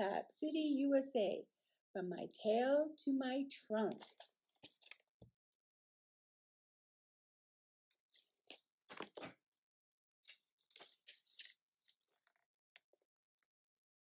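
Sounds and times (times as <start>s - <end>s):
paper pages rustling and crackling: 3.9s - 5.3s, 8.0s - 9.6s, 10.2s - 13.0s.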